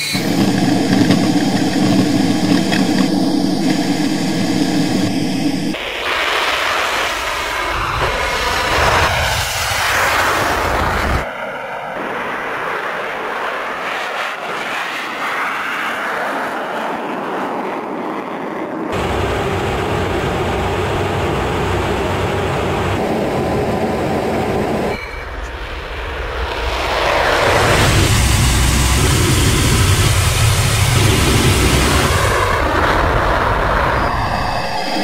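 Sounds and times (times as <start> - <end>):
jet engines and airflow rush: 0.0 - 35.0.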